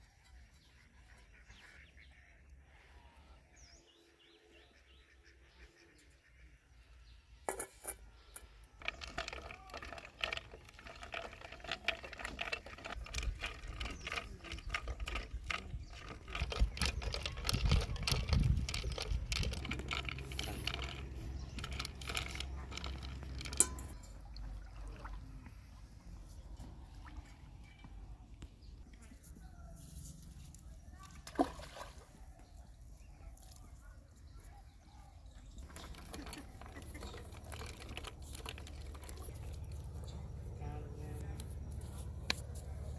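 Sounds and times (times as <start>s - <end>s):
water splashing in a steel bowl: 8.8s - 25.6s, 31.1s - 32.3s.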